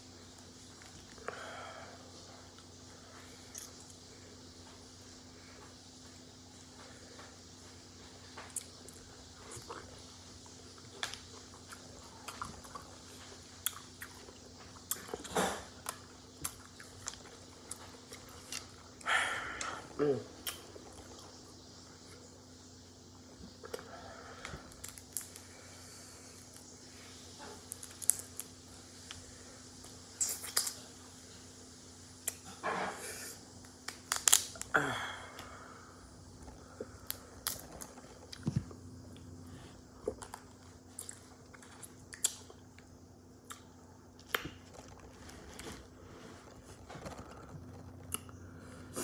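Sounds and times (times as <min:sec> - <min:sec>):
shells cracking and snapping: 0:24.4 - 0:25.4, 0:27.6 - 0:28.5, 0:33.6 - 0:34.8, 0:37.0 - 0:37.9.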